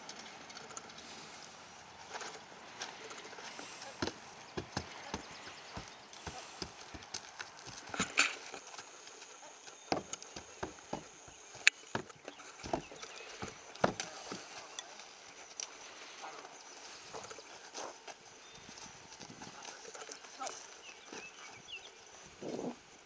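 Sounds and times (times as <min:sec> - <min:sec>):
hooves knocking on wood: 0:03.5 - 0:08.6, 0:09.7 - 0:14.6.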